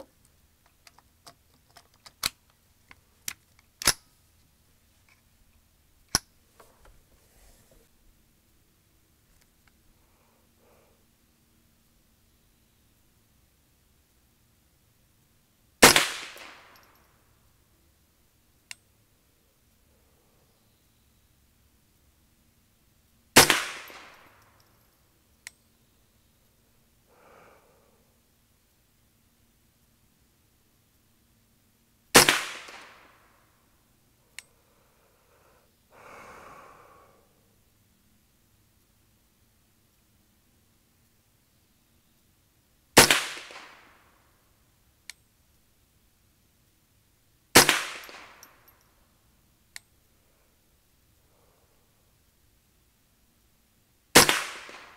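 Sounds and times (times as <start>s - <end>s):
rifle shot with echo: 15.8s - 16.8s, 23.4s - 24.3s, 32.2s - 33.1s, 43.0s - 43.9s, 47.6s - 48.5s, 54.2s - 54.9s
faint sharp click: 25.4s - 25.6s, 34.3s - 34.5s, 45.0s - 45.2s.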